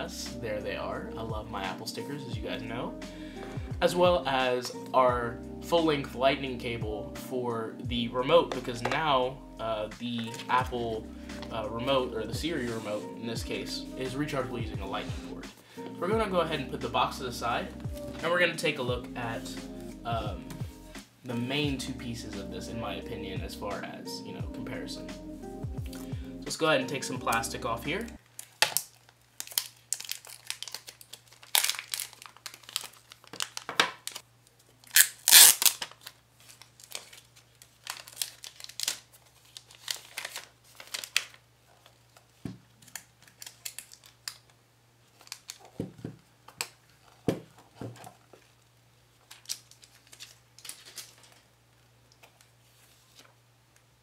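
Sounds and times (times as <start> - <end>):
plastic film crinkling: 28.2 - 53.4.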